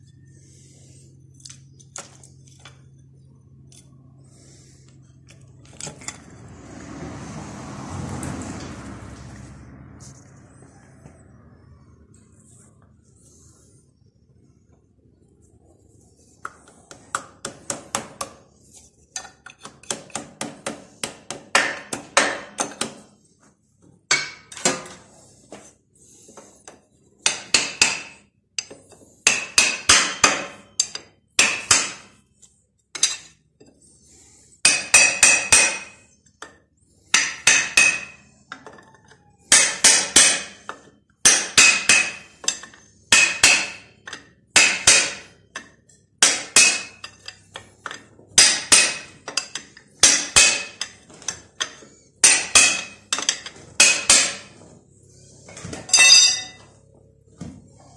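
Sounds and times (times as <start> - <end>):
hammer striking steel: 19.8 - 23.0, 24.1 - 24.9, 27.2 - 32.2, 34.6 - 38.3, 39.5 - 54.6, 55.8 - 56.7.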